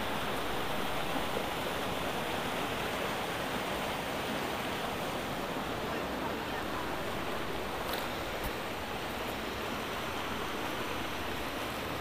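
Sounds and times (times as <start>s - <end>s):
river rushing: 0.0s - 12.0s.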